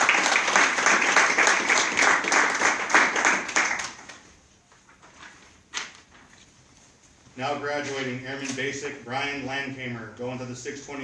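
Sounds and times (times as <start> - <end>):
audience applauding: 0.0 - 4.2.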